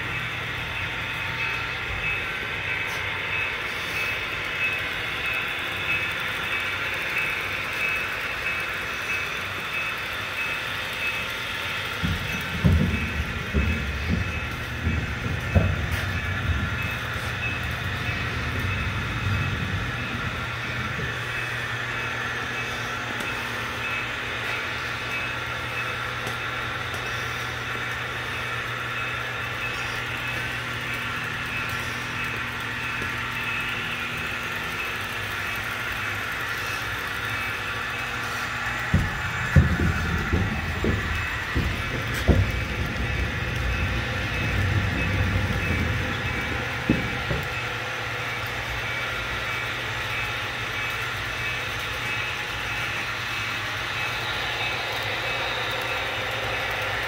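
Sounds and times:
model train whine and rail rumble: 0.0 - 57.0
low thumps and knocks: 38.9 - 47.6.

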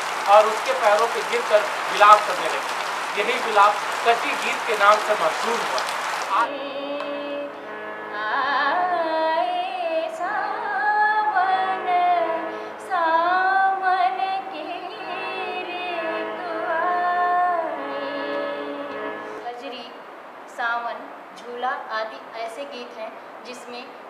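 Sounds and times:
woman singing folk song: 6.4 - 20.0.

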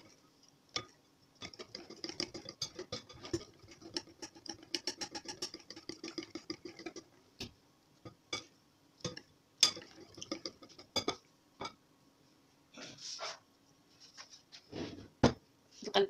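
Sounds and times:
whisk clicking against glass bowl: 0.8 - 7.0.

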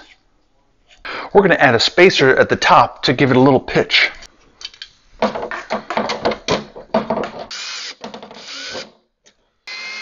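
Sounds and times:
cordless drill driving screws: 7.5 - 9.0, 9.7 - 10.0.

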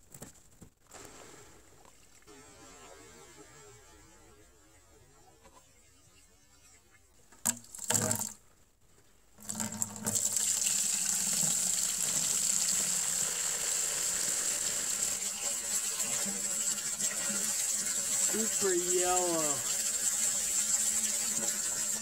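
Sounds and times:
gasoline pouring into plastic bucket: 9.4 - 22.0.

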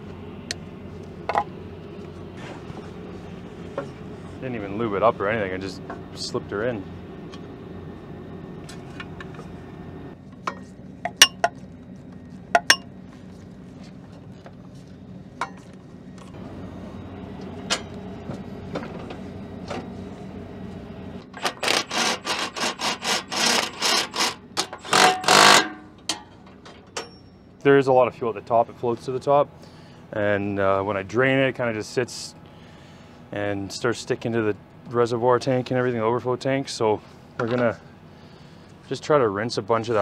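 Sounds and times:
steady low hum: 0.0 - 40.0
impact wrench bursts: 21.3 - 25.8.

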